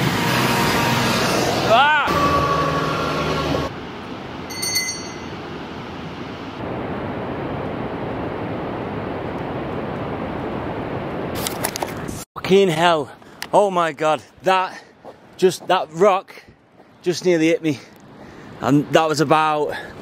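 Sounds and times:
bus passing: 0:00.0 - 0:06.7
steady rushing noise: 0:00.0 - 0:11.4
high ringing: 0:04.5 - 0:05.7
steady held tone: 0:04.5 - 0:05.7.

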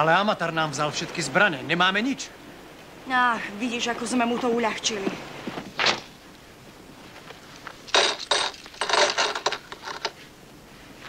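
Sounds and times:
coins clinking: 0:07.9 - 0:10.1.

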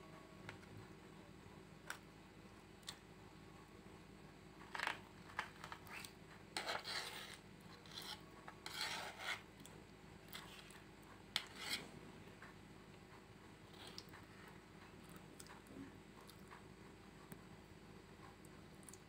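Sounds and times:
knife scraping through jelly: 0:05.4 - 0:09.5, 0:10.3 - 0:11.9, 0:13.7 - 0:14.5.

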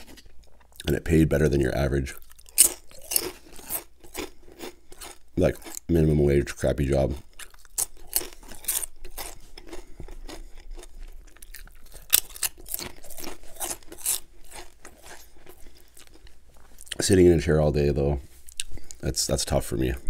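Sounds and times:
potato chips crunching: 0:02.0 - 0:17.1.

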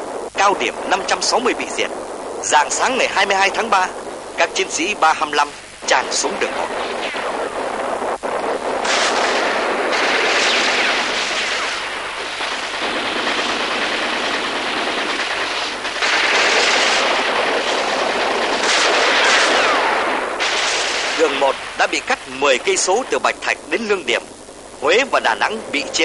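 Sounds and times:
continuous gunfire: 0:00.0 - 0:24.2
shell explosions: 0:00.0 - 0:26.0.

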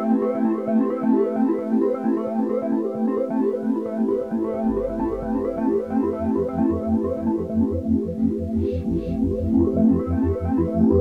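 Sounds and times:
low bass: 0:04.1 - 0:11.0
synthesizer tune of repeating notes: 0:04.2 - 0:07.8.

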